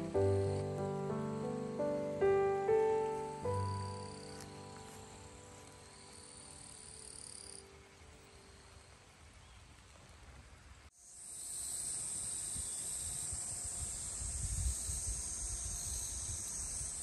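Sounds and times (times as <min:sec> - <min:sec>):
faint outdoor hiss: 0:00.0 - 0:17.0
insects chorus: 0:00.0 - 0:17.0
wind buffeting microphone: 0:12.5 - 0:17.0.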